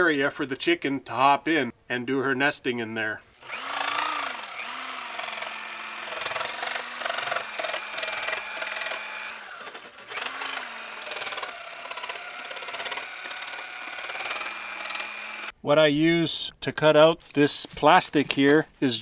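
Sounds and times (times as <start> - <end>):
jigsaw cutting plastic: 3.4 - 15.5.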